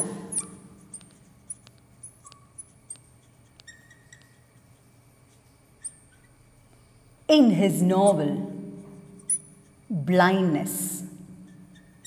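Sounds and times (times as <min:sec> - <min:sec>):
marker squeaking on glass: 0:00.0 - 0:06.6, 0:09.1 - 0:09.9, 0:11.3 - 0:12.0.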